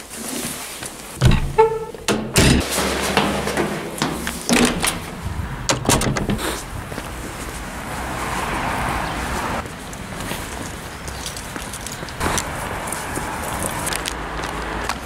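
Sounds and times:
footsteps on stone stairs: 0.0 - 7.7
knocks and thuds: 1.2 - 6.4
footsteps on pavement: 2.8 - 15.0.

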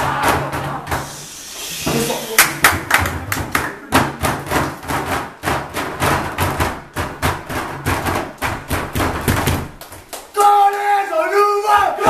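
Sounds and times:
group stamping and clapping: 2.3 - 11.0.

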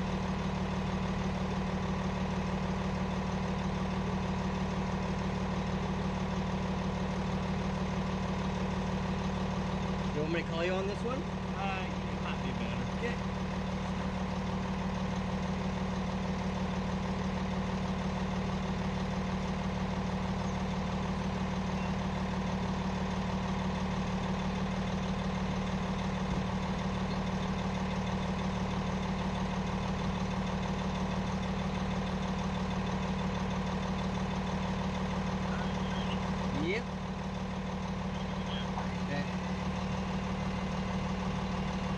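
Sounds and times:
engine idling: 0.0 - 41.9.

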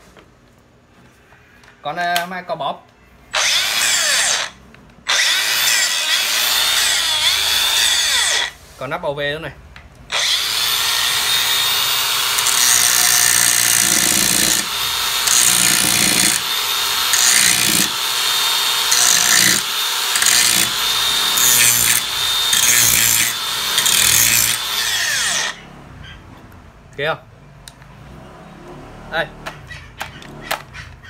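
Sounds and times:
angle grinder running: 3.4 - 8.6, 10.1 - 25.7.

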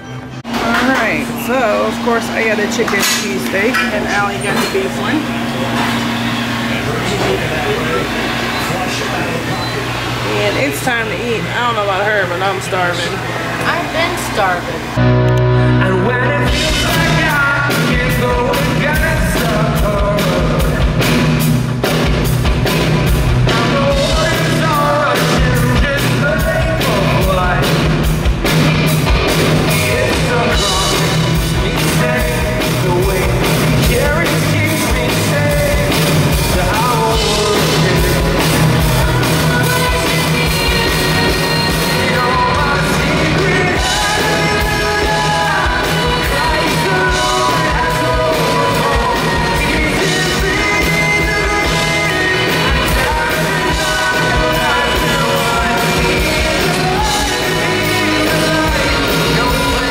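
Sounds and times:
electric guitar: 13.1 - 59.9
bass guitar: 14.9 - 59.9
drums: 14.9 - 59.9
man singing lead: 15.4 - 21.2, 23.4 - 28.0, 29.3 - 59.9.

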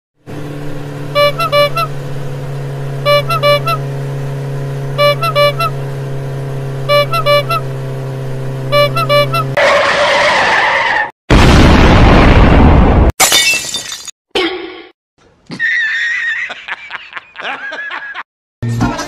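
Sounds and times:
vehicle engine drone: 0.2 - 9.8
short horn toots: 1.1 - 2.0, 3.0 - 4.0, 4.9 - 5.8, 6.8 - 7.8, 8.7 - 9.6.

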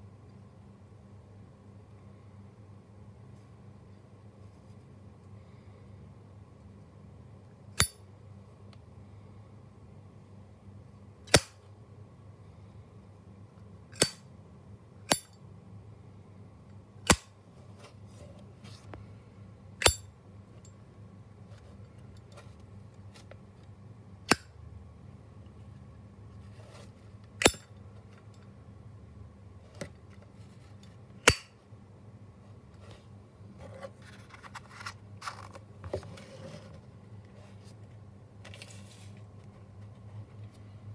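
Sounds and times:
scraping and rustling of box: 32.8 - 37.8.

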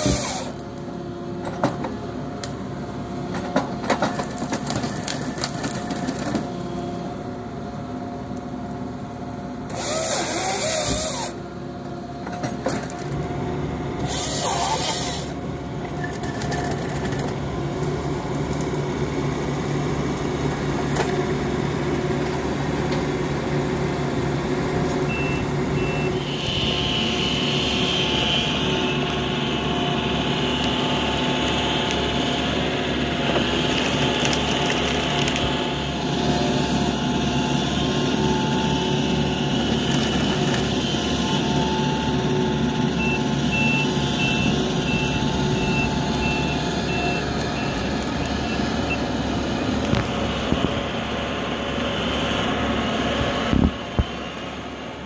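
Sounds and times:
diesel engine running: 0.0 - 55.0
hydraulic machine bursts: 9.7 - 11.4.

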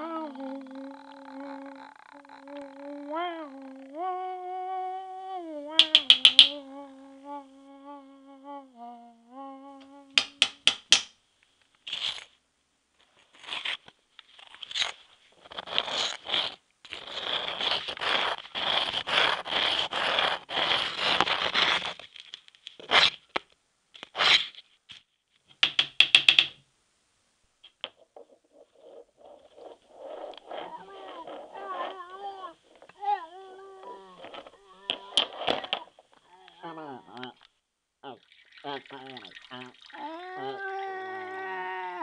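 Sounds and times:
low hummed tone: 0.0 - 5.8, 6.5 - 10.2
paper scraping and tearing: 13.3 - 23.2, 24.0 - 24.6.

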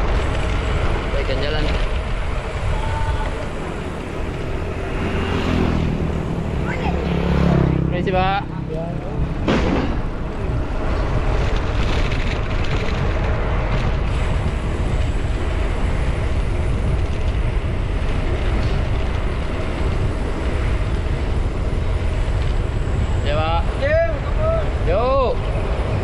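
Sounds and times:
road rumble: 0.0 - 26.0
wind rush on microphone: 0.0 - 26.0.

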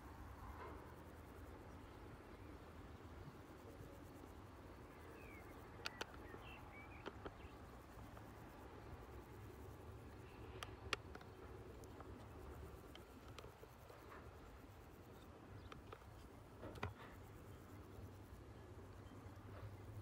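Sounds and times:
faint low rumble: 0.0 - 20.0
soft clicks: 5.0 - 8.4, 10.1 - 14.4, 15.0 - 17.6.

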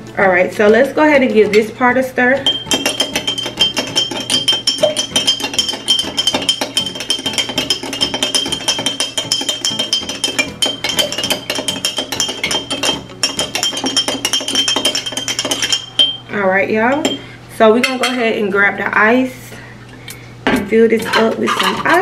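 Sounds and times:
spoon clinking in a glass: 2.4 - 16.3.

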